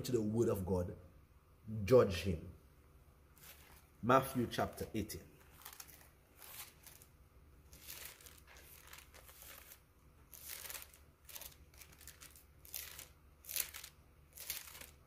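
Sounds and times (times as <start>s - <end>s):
thin pages being turned: 3.4s - 3.9s, 5.4s - 15.0s.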